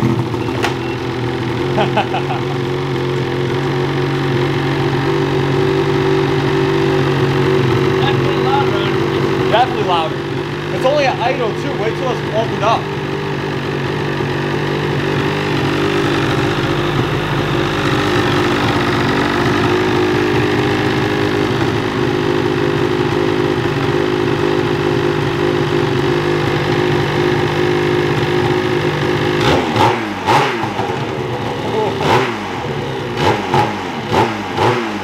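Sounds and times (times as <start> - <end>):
engine throttle blip: 0.0 - 1.4
snowmobile engine idling: 0.0 - 35.0.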